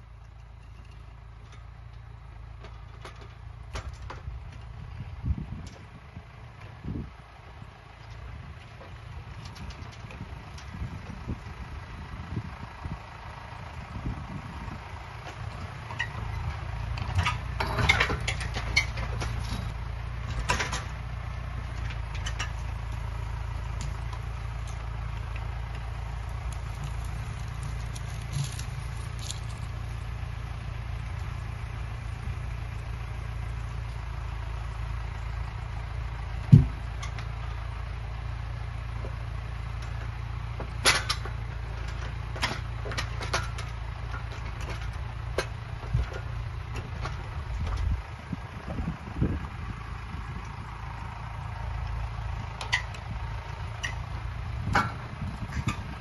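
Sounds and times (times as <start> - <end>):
clacks of grapple and logs: 0.0 - 11.5, 15.0 - 49.4, 50.4 - 56.0
tractor diesel engine idling: 0.0 - 56.0
loud thump: 36.5 - 36.8.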